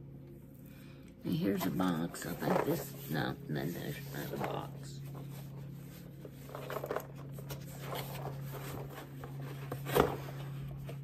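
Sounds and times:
steady low hum: 0:00.0 - 0:11.0
rustling of packaging: 0:01.5 - 0:11.0.

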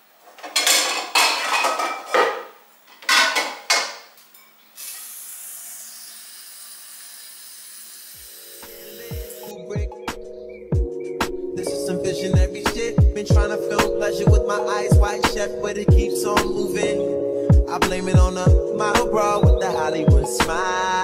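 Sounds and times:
pots and pans clattering: 0:00.3 - 0:04.5
music: 0:08.4 - 0:21.0.

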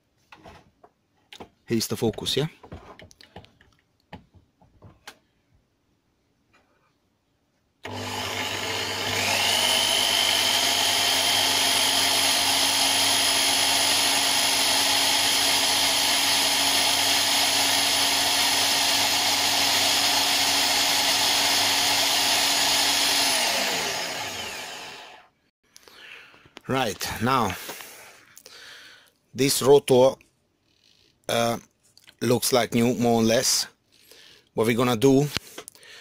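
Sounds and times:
electric drill whine: 0:07.8 - 0:25.3
file against spinning metal: 0:07.9 - 0:25.2.

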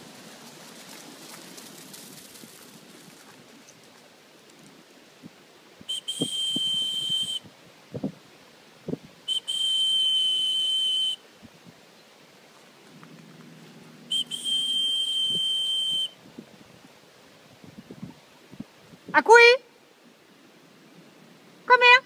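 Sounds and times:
dog whistle blasts: 0:05.9 - 0:07.4, 0:09.3 - 0:11.2, 0:14.1 - 0:16.2.

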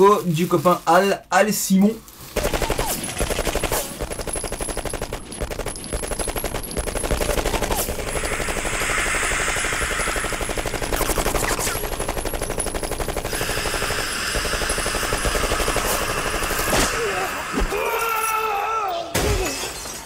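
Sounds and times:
rapid gunfire: 0:02.3 - 0:17.0
scattered hits: 0:02.4 - 0:17.1.

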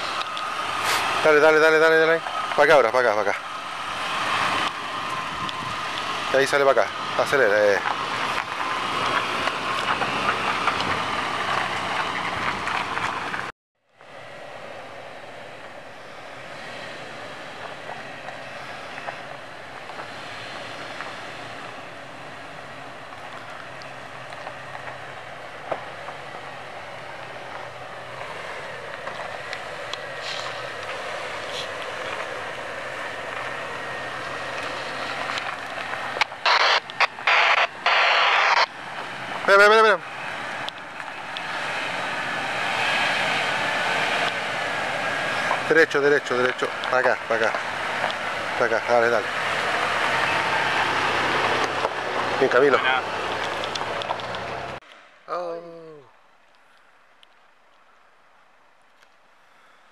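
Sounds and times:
dense crackling with clicks: 0:00.0 - 0:03.4, 0:06.8 - 0:13.5, 0:28.9 - 0:32.4, 0:33.2 - 0:39.9, 0:51.4 - 0:55.0.

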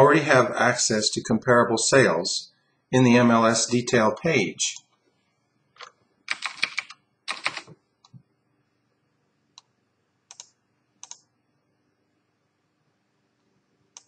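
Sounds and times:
keyboard typing: 0:05.8 - 0:07.8, 0:10.3 - 0:11.2.

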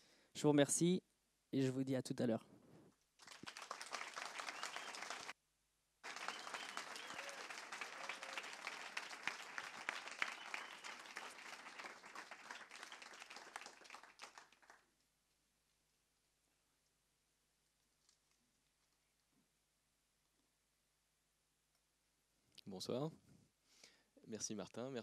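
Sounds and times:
audience applauding: 0:03.2 - 0:05.4, 0:06.0 - 0:14.9.

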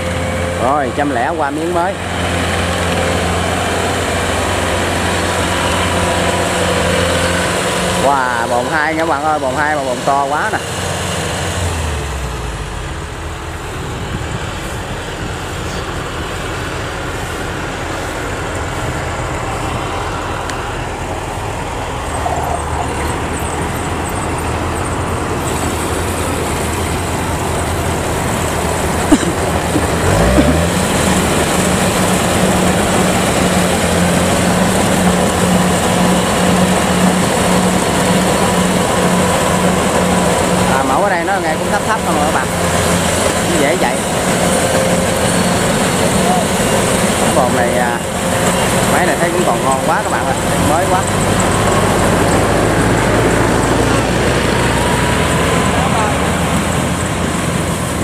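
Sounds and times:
combine harvester engine drone: 0:00.0 - 0:58.0.

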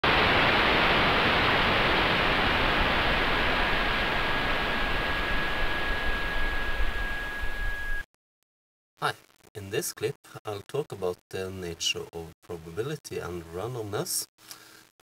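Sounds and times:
steady static hiss: 0:00.0 - 0:08.0
thin high whistle: 0:05.7 - 0:08.1.

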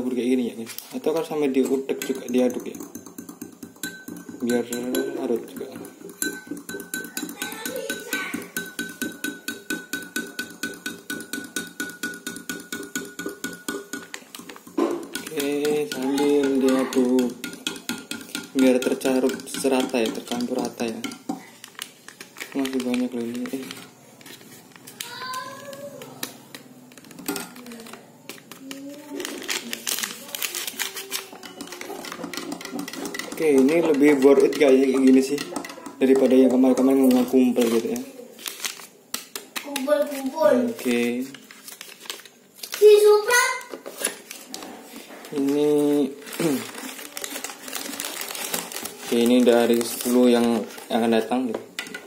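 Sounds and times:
spoon clinking in a glass: 0:01.6 - 0:14.1
foil sachet crinkling: 0:21.4 - 0:25.8, 0:26.9 - 0:32.2, 0:37.6 - 0:51.2
small clicks and crackles: 0:21.5 - 0:32.2.

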